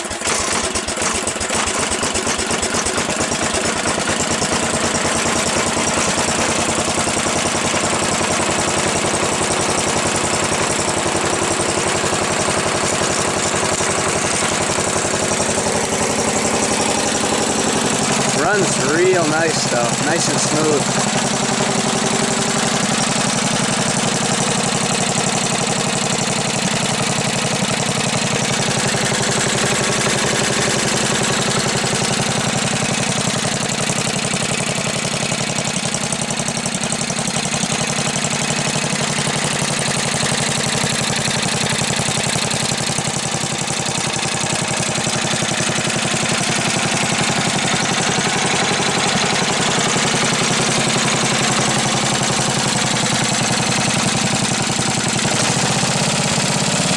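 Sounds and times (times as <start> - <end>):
snowblower engine running: 0.0 - 56.9.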